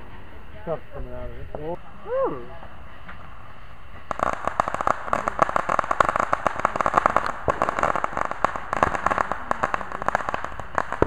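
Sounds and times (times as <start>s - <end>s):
firework crackling pops: 2.6s - 11.0s.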